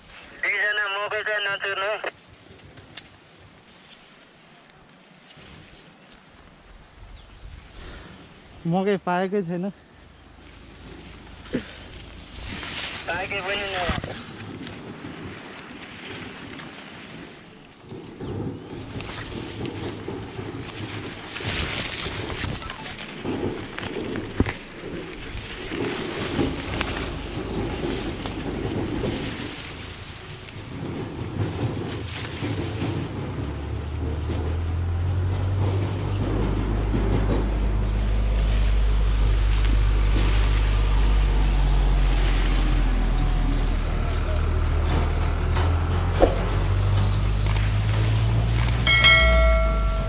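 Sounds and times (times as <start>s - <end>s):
vehicle engine hum: 9.2s - 15.2s, 18.2s - 50.0s
wind buffeting microphone: 9.8s - 43.8s.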